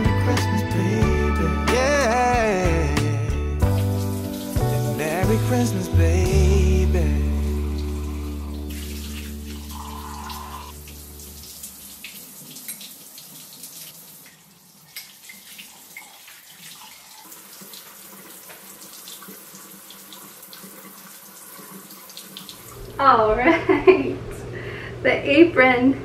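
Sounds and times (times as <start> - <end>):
music: 0.0 - 11.0
faucet running into sink: 7.4 - 23.0.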